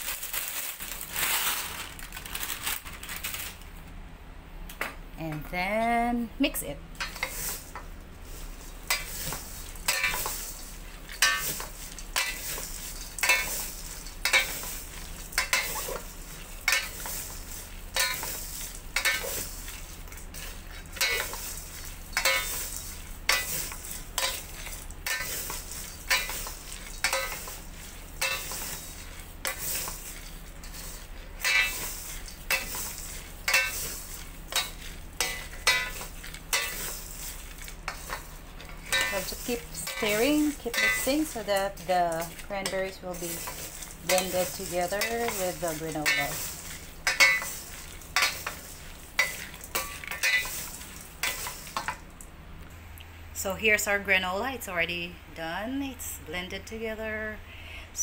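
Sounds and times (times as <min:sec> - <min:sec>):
granola tossed in steel bowl: 0:08.9 - 0:51.8.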